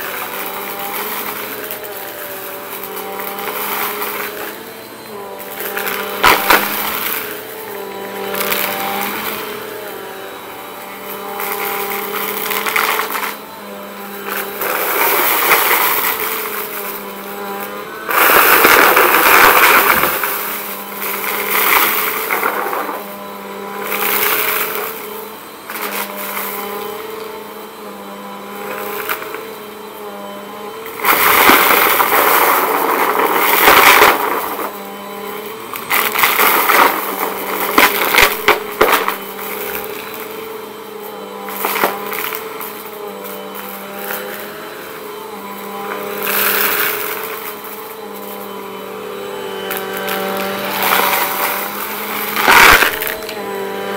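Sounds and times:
vacuum cleaner motor hum: 0.0s - 53.9s
debris crackling and rattling: 18.1s - 20.3s.

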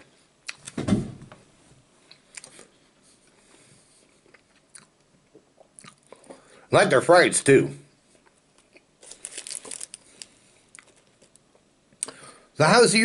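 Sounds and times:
chewing french fries: 3.3s - 6.5s, 8.1s - 12.2s.

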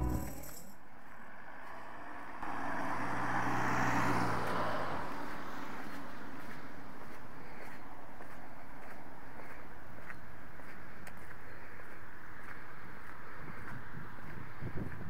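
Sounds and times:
car passing by: 1.2s - 9.4s.

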